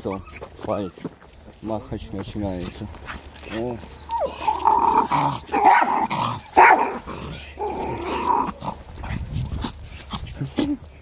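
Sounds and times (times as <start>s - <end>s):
dogs barking: 3.0s - 9.1s.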